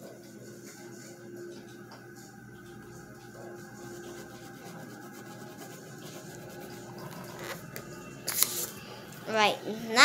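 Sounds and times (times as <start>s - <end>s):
faint hum: 0.0s - 10.0s
pen scratching on paper: 3.9s - 7.6s.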